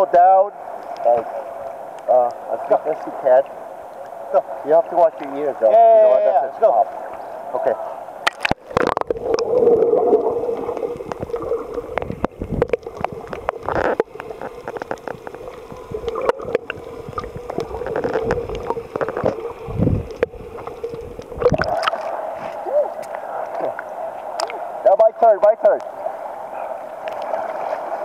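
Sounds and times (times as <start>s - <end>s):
sharp underwater clicks: 8.2s - 22.2s, 23.0s - 24.6s
muffled underwater bubbling: 8.2s - 24.7s
low underwater rumble: 8.3s - 24.6s.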